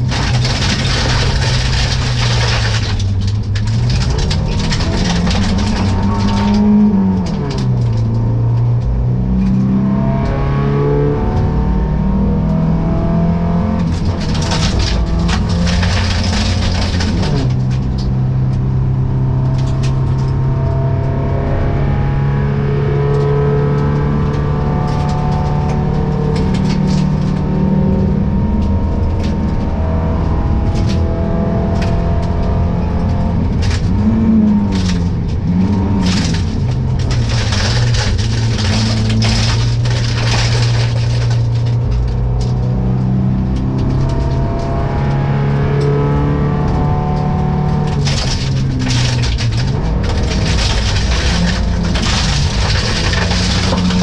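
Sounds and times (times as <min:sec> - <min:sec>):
gravel clicking against car: 0:00.0 - 0:09.7, 0:13.7 - 0:20.6, 0:28.6 - 0:54.0
rally car engine revving: 0:00.0 - 0:54.0.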